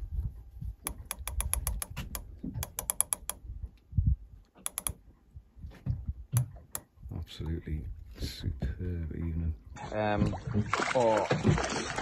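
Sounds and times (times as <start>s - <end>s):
fishing reel ratchet clicking: 0.9s - 3.4s, 4.7s - 5.0s.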